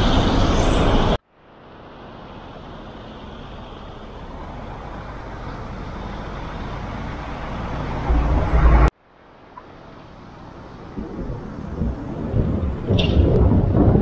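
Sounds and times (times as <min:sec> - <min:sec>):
car road noise: 0:00.0 - 0:14.0
wind buffeting microphone: 0:10.9 - 0:14.0.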